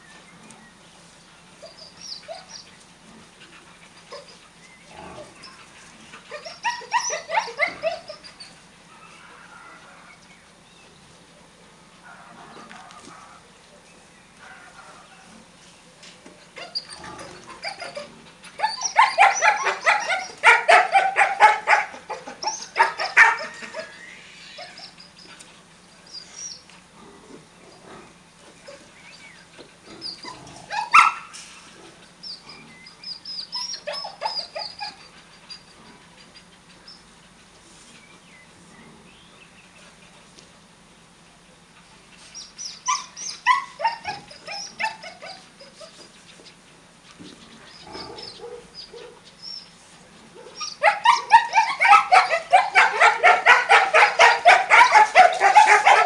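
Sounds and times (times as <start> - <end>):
dogs barking: 6.3 - 8.2, 16.6 - 24.0, 30.2 - 31.4, 33.5 - 35.1, 42.8 - 46.0, 47.8 - 49.3, 50.3 - 56.0.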